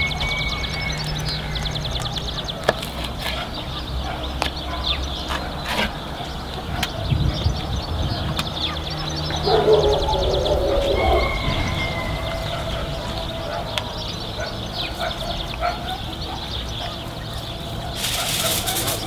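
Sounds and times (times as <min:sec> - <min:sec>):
fast high bird trill: 0:00.0 - 0:02.6
birds calling: 0:00.0 - 0:19.0.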